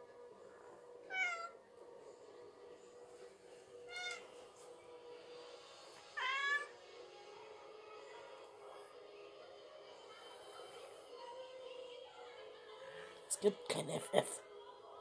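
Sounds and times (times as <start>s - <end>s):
cat meowing: 1.1s - 1.6s, 3.9s - 4.2s, 6.2s - 6.8s.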